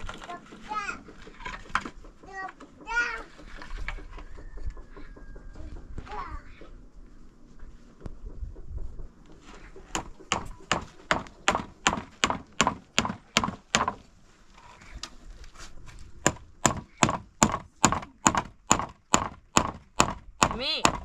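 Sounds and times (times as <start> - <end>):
hammer driving nail into wood: 9.9 - 14.0, 16.2 - 21.0.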